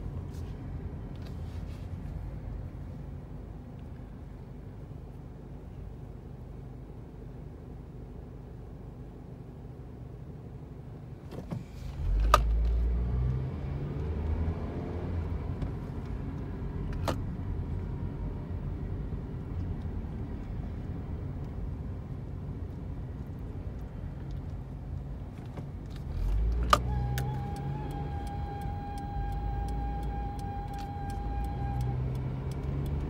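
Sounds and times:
car engine and road noise: 0:00.0 - 0:33.0.

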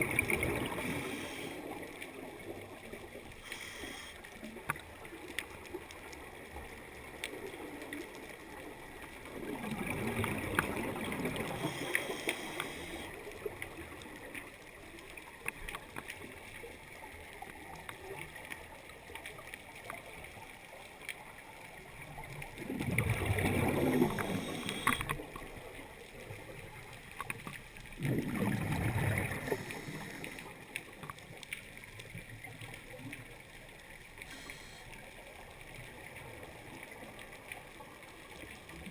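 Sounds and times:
exhaled bubbles underwater: 0:00.0 - 0:20.9, 0:21.5 - 0:38.9
low underwater hiss: 0:00.0 - 0:38.9
small clicks: 0:24.1 - 0:25.4, 0:26.8 - 0:28.0.

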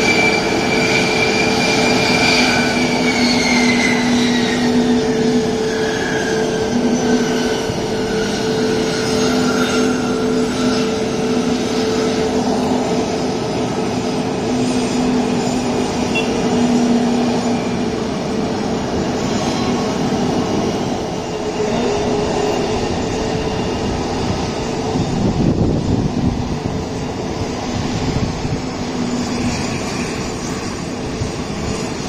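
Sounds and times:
jet engines roaring: 0:00.0 - 0:32.0.

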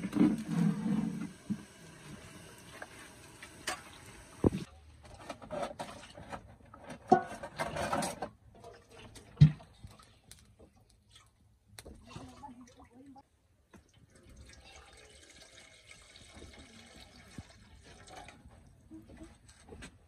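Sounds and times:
metal pots clattering: 0:03.5 - 0:09.5.

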